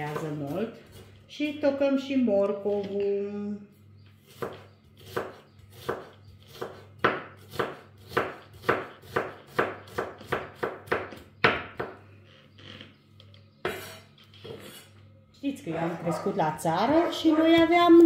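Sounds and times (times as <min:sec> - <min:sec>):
knife chopping on wooden board: 0:04.2 - 0:12.0, 0:13.6 - 0:14.7.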